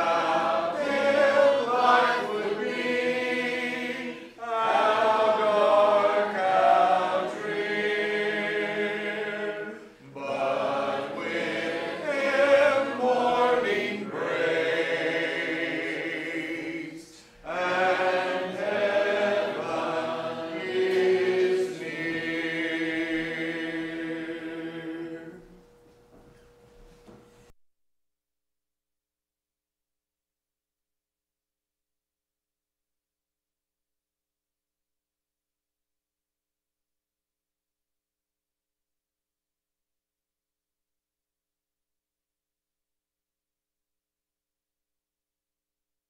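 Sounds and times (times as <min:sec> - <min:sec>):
congregation singing a hymn: 0:00.0 - 0:25.6.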